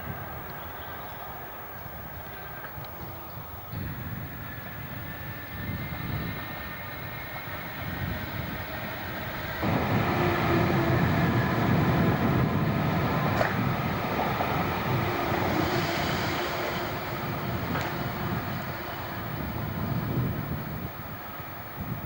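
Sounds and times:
faint hum: 0:00.0 - 0:22.0
train wheels and motors rumbling: 0:00.0 - 0:22.0.

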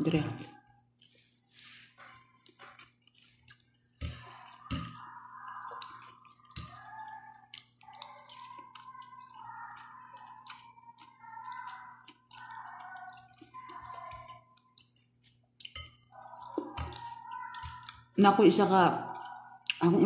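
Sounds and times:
person chewing and slurping noodles: 0:00.7 - 0:18.2.

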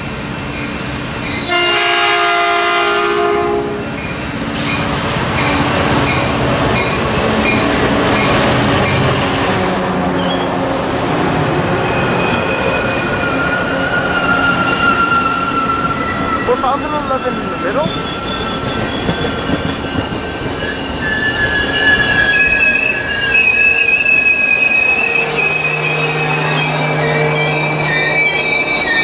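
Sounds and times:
high train squeal: 0:00.0 - 0:29.0
train rumbling past: 0:00.0 - 0:29.0
train horn blast: 0:01.4 - 0:03.8, 0:24.7 - 0:28.4.

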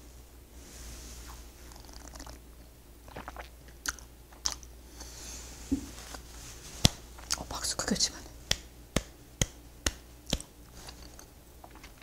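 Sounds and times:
sipping and swallowing: 0:01.7 - 0:02.4, 0:03.1 - 0:04.7
lip smacks and tongue clicks: 0:03.2 - 0:04.7, 0:08.5 - 0:12.0.

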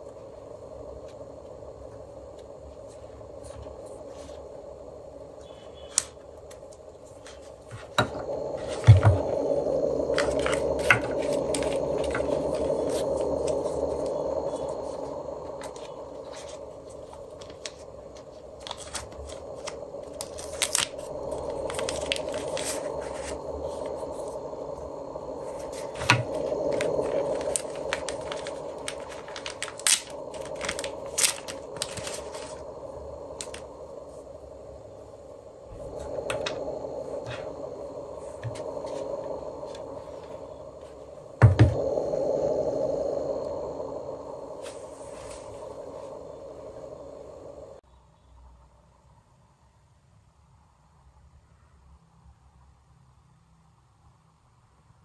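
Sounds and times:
plastic pouch rustling: 0:18.6 - 0:21.0, 0:26.7 - 0:32.6.

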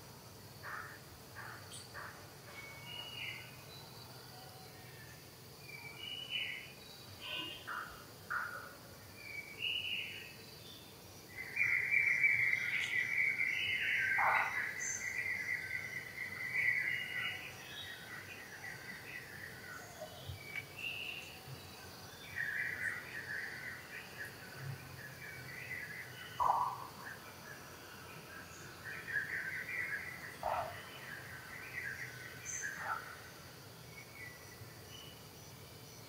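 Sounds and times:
insects buzzing: 0:00.0 - 0:36.0
bird chirps: 0:11.4 - 0:18.3, 0:25.6 - 0:27.2, 0:28.5 - 0:33.1.

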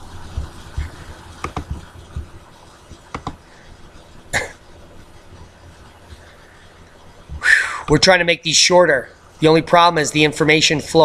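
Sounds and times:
computer mouse clicks: 0:01.4 - 0:01.8, 0:03.1 - 0:03.4.

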